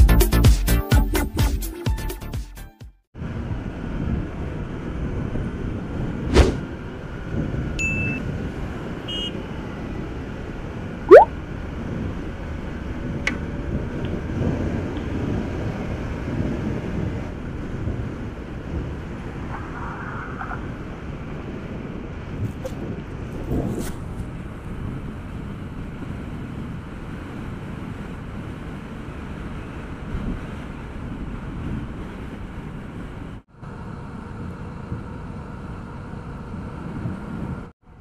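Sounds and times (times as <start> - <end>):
motorcycle riding on highway: 3.2 - 38.0.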